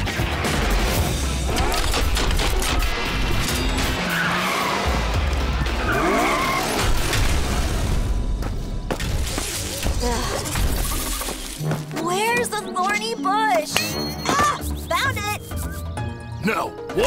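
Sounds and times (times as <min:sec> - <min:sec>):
background music: 0:00.0 - 0:17.0
tyres skidding: 0:03.5 - 0:07.6.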